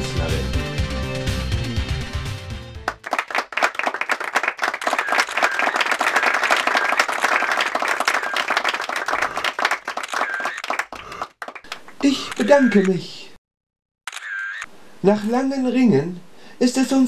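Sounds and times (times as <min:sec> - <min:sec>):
music: 0:00.0 - 0:03.0
audience applauding: 0:02.8 - 0:12.8.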